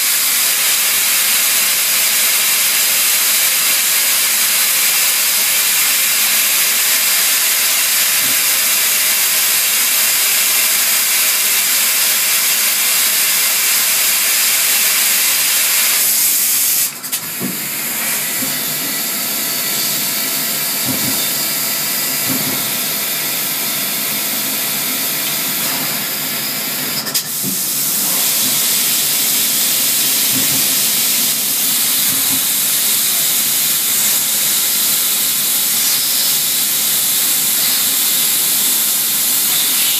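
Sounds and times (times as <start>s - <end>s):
coolant spraying hiss: 0.0s - 22.3s, 25.4s - 39.9s.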